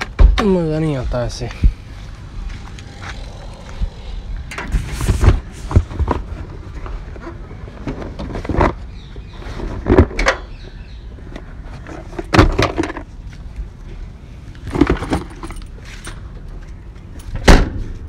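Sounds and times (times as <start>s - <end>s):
knocks and rattles of objects: 11.6s - 13.1s, 14.6s - 16.3s.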